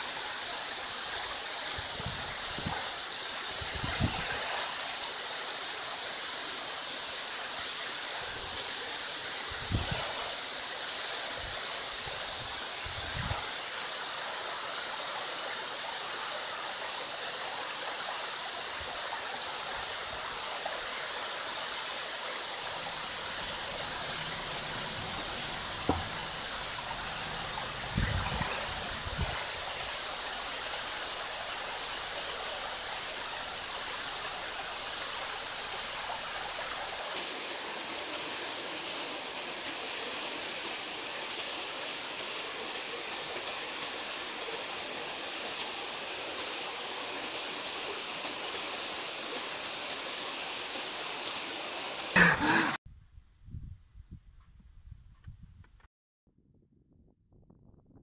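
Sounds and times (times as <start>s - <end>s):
waterfall rushing: 0.0s - 38.6s, 52.1s - 52.8s
low thumps: 23.5s - 29.2s.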